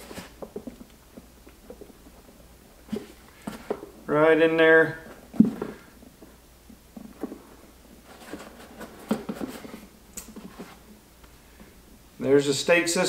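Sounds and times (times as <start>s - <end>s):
plastic decoy handling noise: 0.0s - 4.1s, 5.0s - 11.0s.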